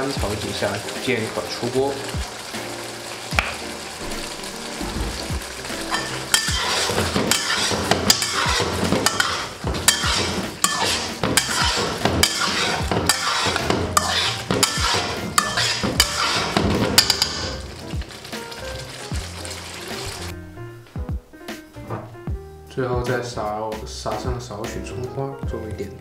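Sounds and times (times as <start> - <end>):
food sizzling in oil: 0.0 - 20.6
metal spatula scraping wok: 4.5 - 20.4.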